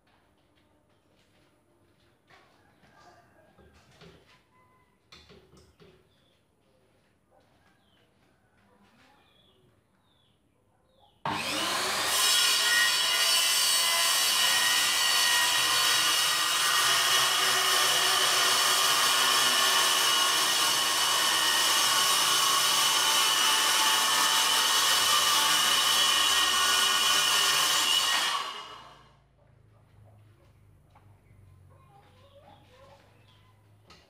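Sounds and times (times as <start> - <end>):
circular saw cutting wood: 11.3 - 29.1.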